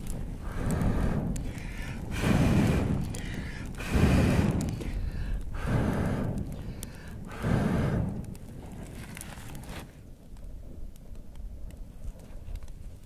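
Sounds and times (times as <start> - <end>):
person blowing air into fire: 0.0 - 10.0
fire crackling: 0.0 - 13.0.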